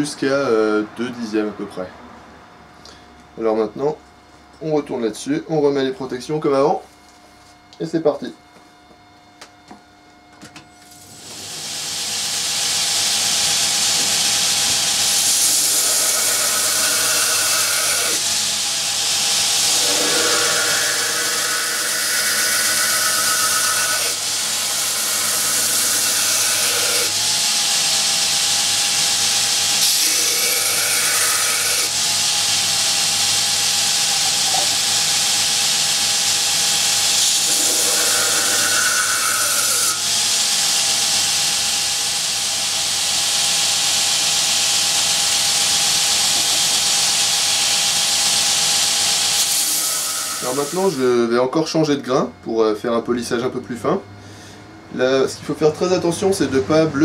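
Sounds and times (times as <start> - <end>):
belt grinder grinding steel blade: 11.2 - 51.0.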